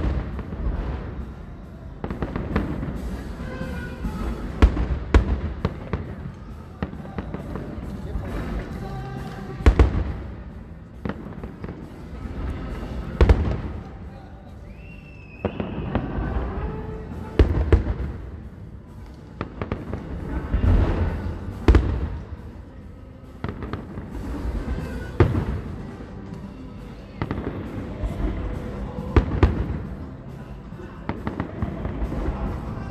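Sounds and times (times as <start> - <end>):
fireworks bangs: 0.0 - 32.9
fireworks crackling pops: 2.0 - 10.4, 11.0 - 14.0, 14.7 - 22.5, 23.3 - 30.1.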